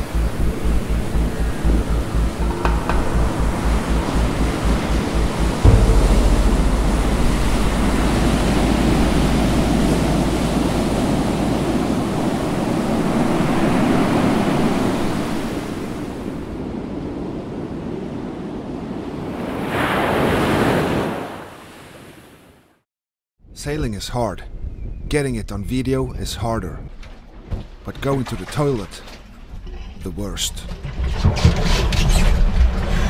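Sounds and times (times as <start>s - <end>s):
surge of water and spray: 0.0s - 16.5s
wind buffeting microphone: 0.0s - 19.7s
rough sea rushing and breaking: 0.0s - 22.6s.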